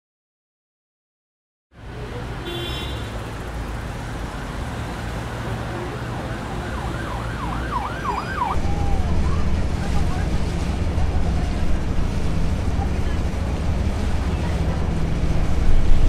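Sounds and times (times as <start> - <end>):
outdoor noise: 1.7 - 16.0
distant siren wailing: 4.0 - 9.5
steady low rumble: 8.6 - 16.0.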